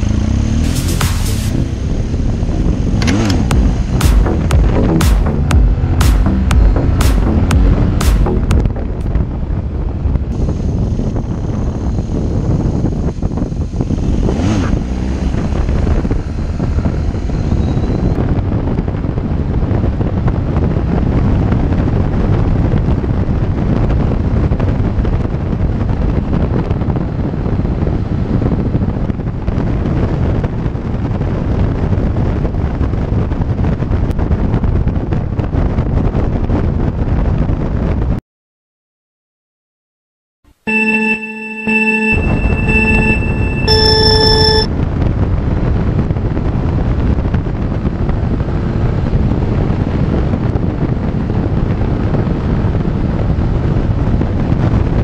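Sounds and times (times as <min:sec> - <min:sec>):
motorcycle cruising: 0:00.0 - 0:35.4
wind rushing over microphone: 0:01.4 - 0:04.6, 0:06.7 - 0:38.2, 0:44.7 - 0:55.0.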